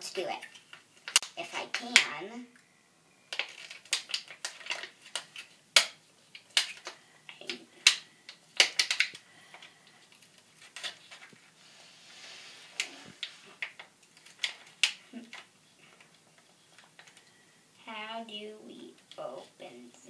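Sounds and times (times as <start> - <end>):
plastic blister pack crackling: 3.3 - 11.5, 12.6 - 17.4.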